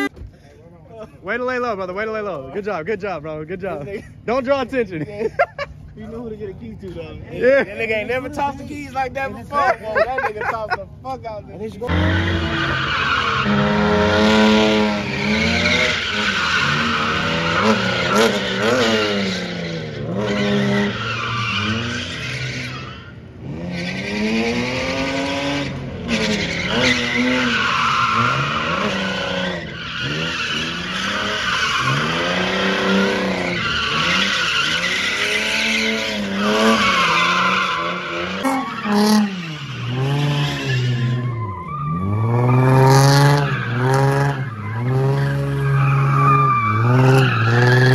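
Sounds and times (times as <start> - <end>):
tyres squealing and skidding: 0.0 - 0.2, 3.4 - 47.9
car engine revving hard: 11.9 - 47.9.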